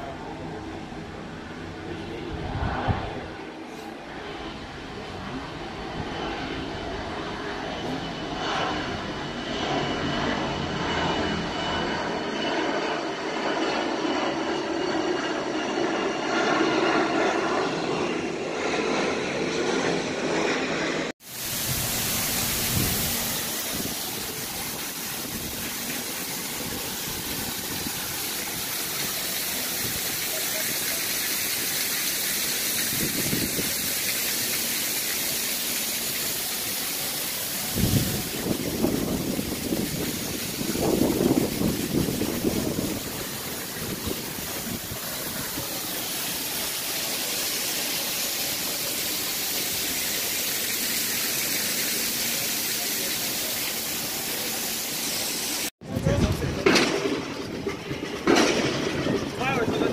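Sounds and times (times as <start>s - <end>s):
wind on microphone: 2.0s - 3.6s, 21.4s - 28.8s, 32.7s - 34.0s, 37.6s - 45.9s, 55.8s - 59.9s.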